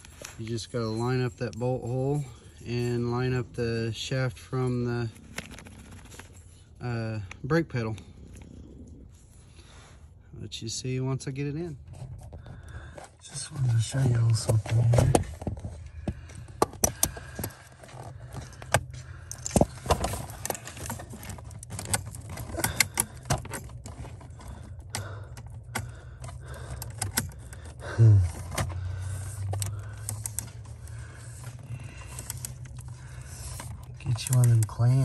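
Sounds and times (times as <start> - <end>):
jingling rattles: 0.0 - 9.1
steady low hum: 0.0 - 35.0.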